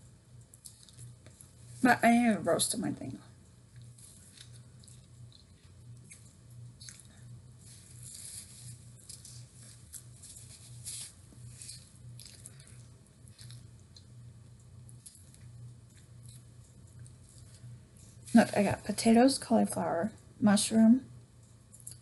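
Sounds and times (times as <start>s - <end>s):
steady low hum: 0.0s - 22.0s
wet chewing of food: 3.7s - 18.3s.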